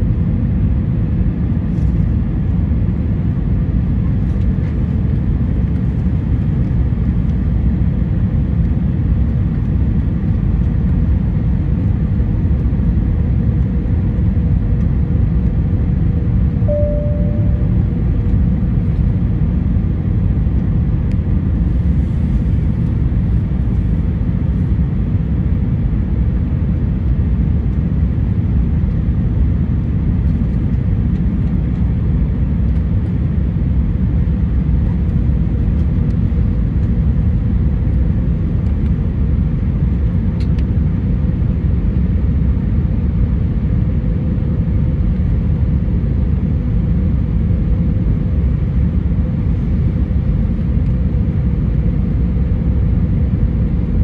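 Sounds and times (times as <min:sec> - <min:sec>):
airliner engines rumbling: 0:00.0 - 0:54.0
faint steady hum: 0:16.4 - 0:44.4.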